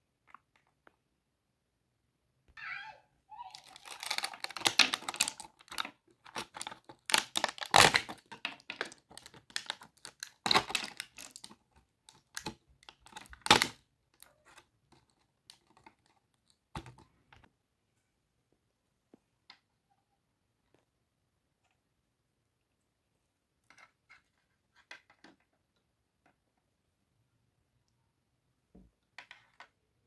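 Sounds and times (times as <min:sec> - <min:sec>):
plastic packaging crinkling: 0:03.5 - 0:13.8.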